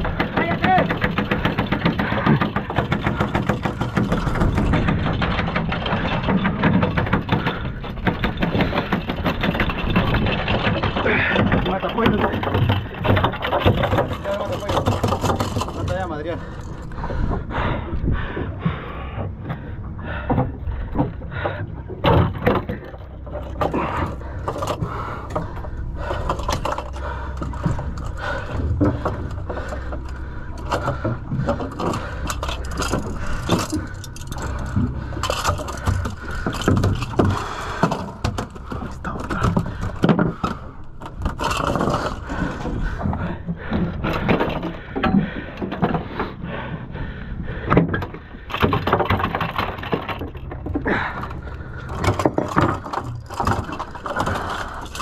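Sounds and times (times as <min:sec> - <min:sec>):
fishing lure scraping and rattling: 0:31.5 - 0:37.4.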